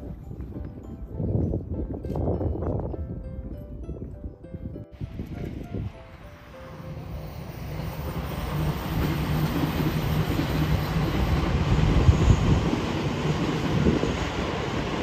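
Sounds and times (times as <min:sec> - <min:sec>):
train passing: 0:05.0 - 0:15.0.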